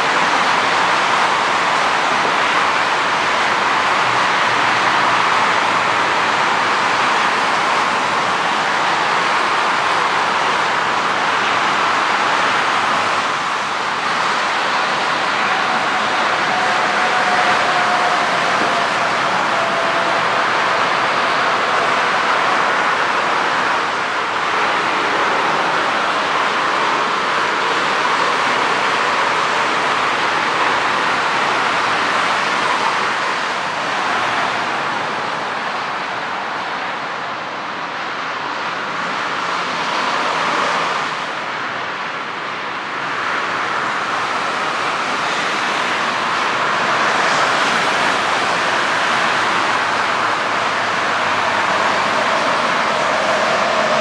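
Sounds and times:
distant jet engines rushing: 45.0s - 54.0s.

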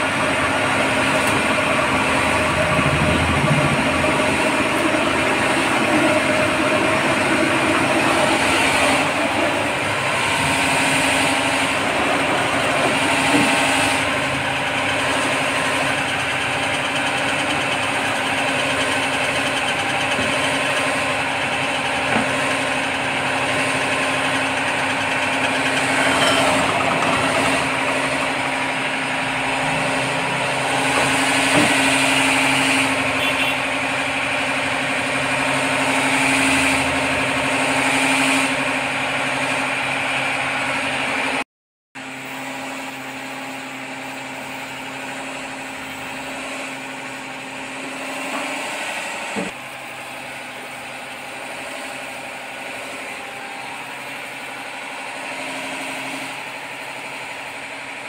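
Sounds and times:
wet grinder motor humming: 0.0s - 41.4s.

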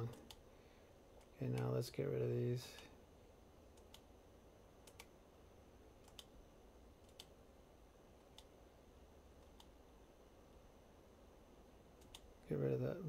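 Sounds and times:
computer mouse clicks: 0.1s - 0.4s, 3.7s - 4.1s, 4.8s - 5.1s, 6.0s - 6.4s, 7.0s - 7.4s, 8.2s - 8.6s, 9.4s - 9.8s, 12.0s - 12.3s.

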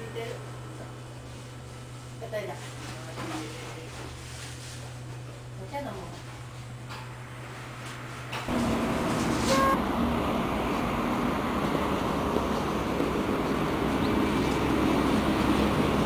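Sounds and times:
road traffic noise: 7.2s - 16.0s.

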